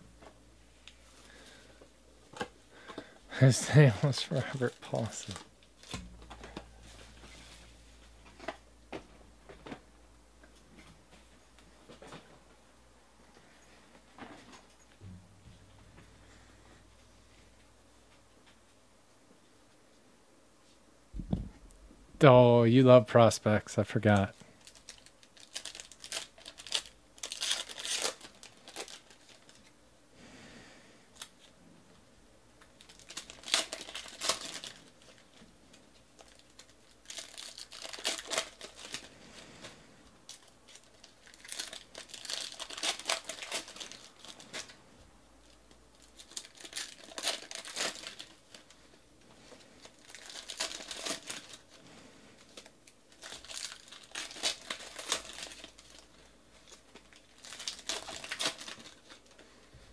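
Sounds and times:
foil wrappers tearing and crinkling: 2.4 - 7.8, 24.6 - 29.7, 32.7 - 44.8, 45.4 - 59.6.

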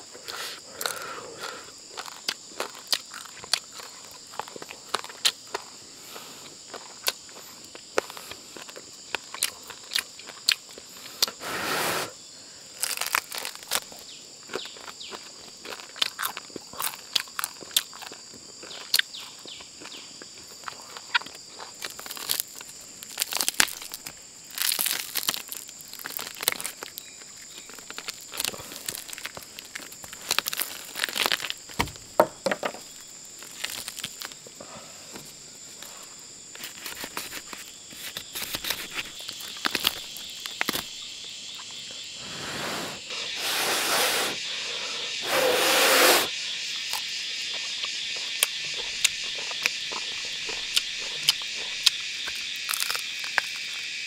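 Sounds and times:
insects chirring: 0.0 - 54.0
lower-pitched insect chorus: 0.0 - 54.0
rushing noises: 42.2 - 44.5, 45.2 - 46.3.

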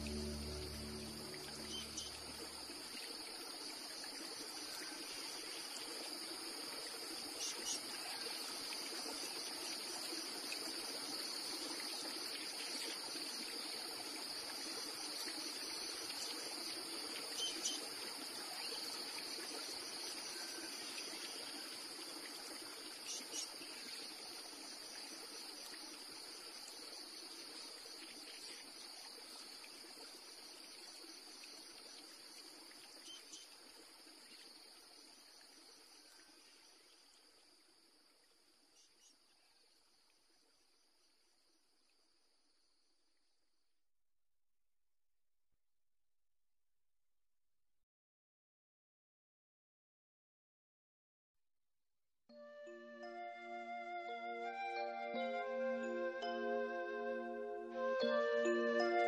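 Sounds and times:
crickets chirping: 0.0 - 43.4, 54.0 - 59.0
trickling stream: 0.0 - 43.4, 53.0 - 59.0.

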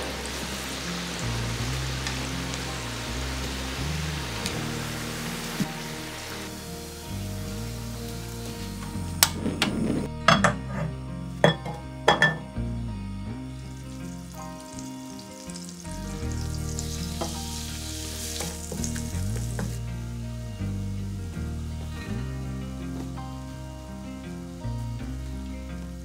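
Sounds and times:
butter sizzling in a saucepan: 0.0 - 9.0, 13.7 - 19.8
light background music: 0.0 - 26.0.

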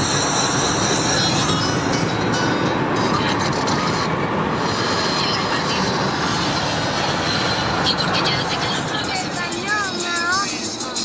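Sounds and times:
car cabin road noise: 0.0 - 11.0.

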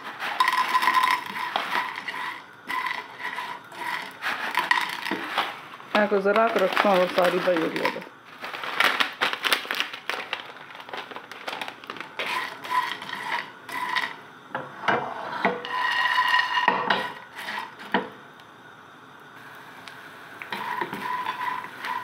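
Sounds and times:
spatula scraping frying pan: 0.0 - 7.9, 12.2 - 14.2, 14.8 - 18.0, 20.5 - 22.0.

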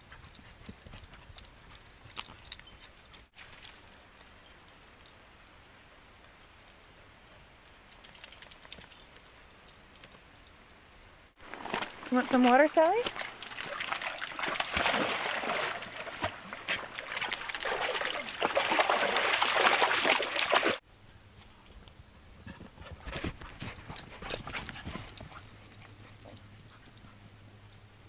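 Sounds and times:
dog lapping water: 13.0 - 20.8.

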